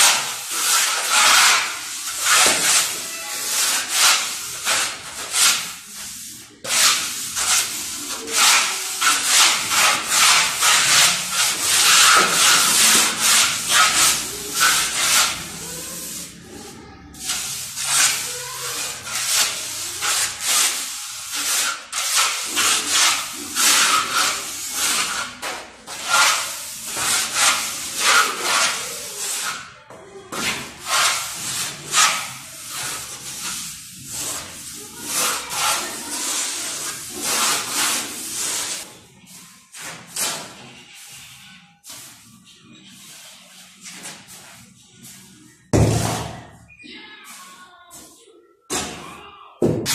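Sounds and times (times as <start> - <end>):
hand float rubbing on plaster: 0.0 - 45.6.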